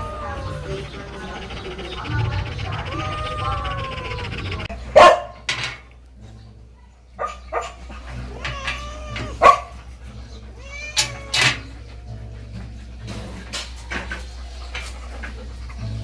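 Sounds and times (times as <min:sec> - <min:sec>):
dog barking and yipping: 0:03.5 - 0:05.5, 0:07.2 - 0:10.0.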